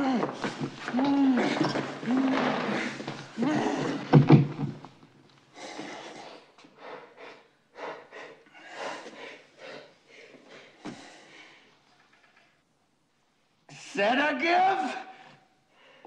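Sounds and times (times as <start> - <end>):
man gasping and panting: 5.6 - 11.7.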